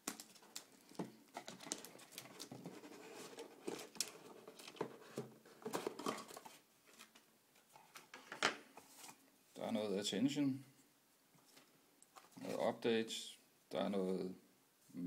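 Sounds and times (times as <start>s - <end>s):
plastic wrapping crinkling: 0.0s - 7.2s.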